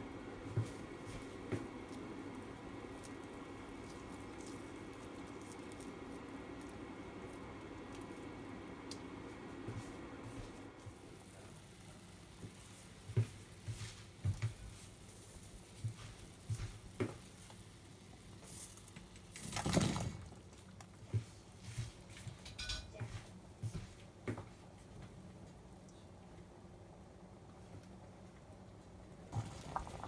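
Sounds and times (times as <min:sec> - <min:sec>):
broth simmering: 0:00.0 - 0:19.5, 0:25.8 - 0:30.0
metal kitchenware clinking: 0:22.4 - 0:22.9.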